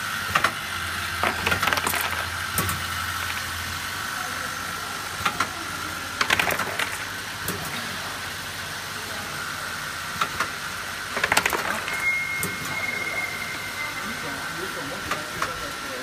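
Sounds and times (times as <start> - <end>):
machine high-pitched hum: 0.0 - 16.0
mechanical clicks and clacks: 0.3 - 0.6, 5.2 - 5.5, 6.2 - 7.8, 10.2 - 12.7.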